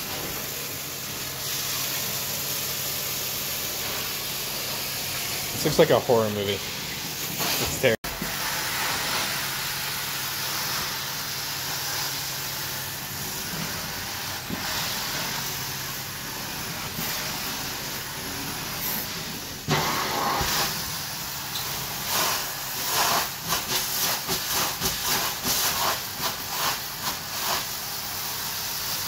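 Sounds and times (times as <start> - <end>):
carpet cleaning wand spraying and vacuuming: 7.3 - 29.0.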